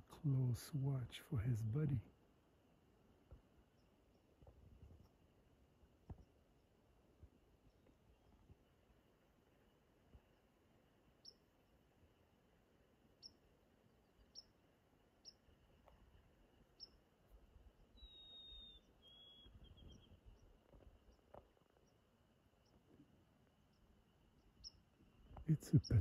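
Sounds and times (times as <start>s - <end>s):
birds chirping: 3.3s - 26.0s
whistled bird song: 17.9s - 20.5s.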